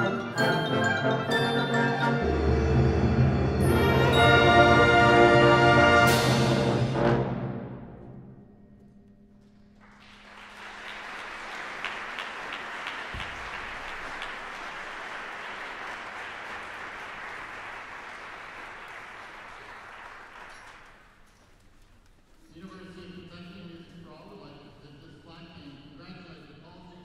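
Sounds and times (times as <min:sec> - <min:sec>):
concert band chord: 0:00.0 - 0:08.8
audience applauding: 0:09.8 - 0:21.3.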